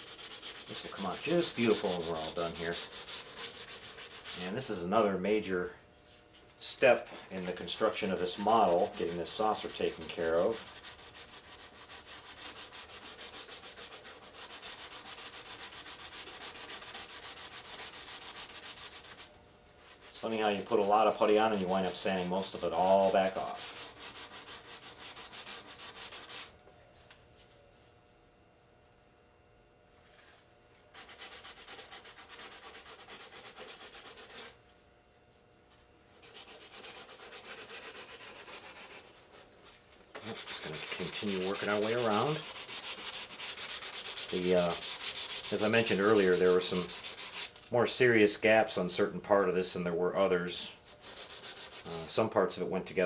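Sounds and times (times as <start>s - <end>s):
sandpaper rubbing back and forth: 0.0s - 4.9s, 7.7s - 26.5s, 30.9s - 34.6s, 36.2s - 47.6s, 50.5s - 52.2s.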